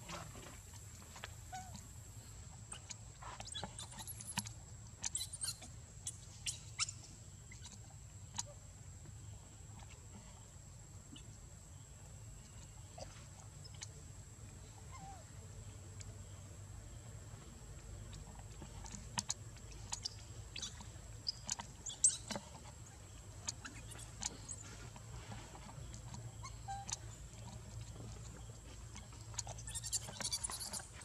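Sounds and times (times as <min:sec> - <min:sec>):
faint squeaks: 0:01.4 - 0:01.8, 0:02.7 - 0:06.9, 0:14.7 - 0:15.3, 0:18.1 - 0:31.0.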